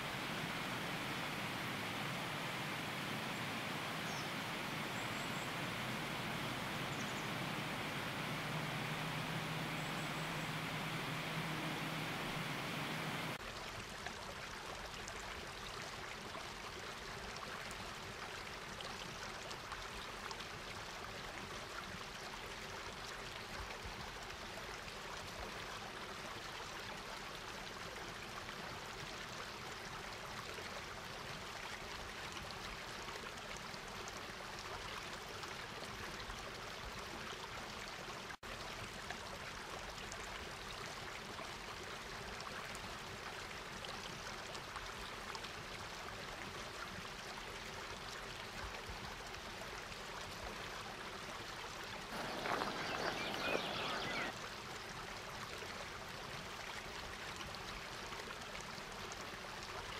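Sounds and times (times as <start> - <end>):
steady rushing noise: 0.0 - 13.4.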